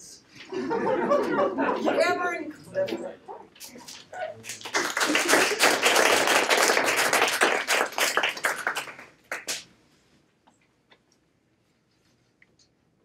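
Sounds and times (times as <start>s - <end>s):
audience applauding: 4.4s - 9.6s.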